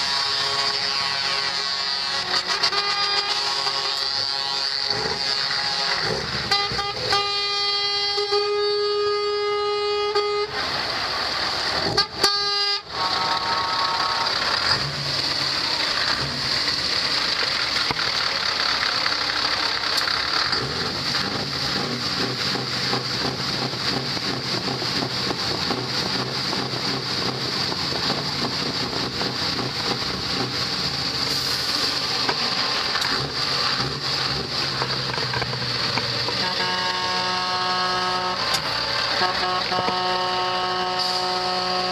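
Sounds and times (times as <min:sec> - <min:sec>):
truck air horn blasts: 0:00.0 - 0:11.1, 0:11.7 - 0:17.8, 0:36.2 - 0:41.9
diesel trucks rolling past: 0:00.0 - 0:41.9.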